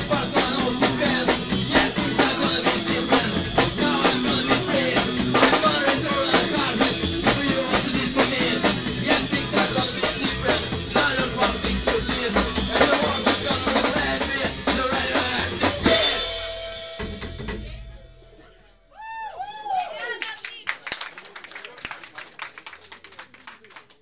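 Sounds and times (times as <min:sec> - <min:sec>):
upright double bass: 0:00.0 - 0:16.4
person singing: 0:00.0 - 0:16.6
drum kit beat: 0:00.0 - 0:18.5.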